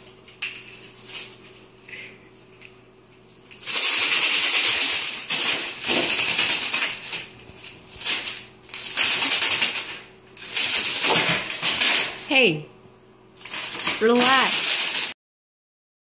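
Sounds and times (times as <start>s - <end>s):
plastic film crackling: 3.5s - 12.3s, 13.4s - 15.2s.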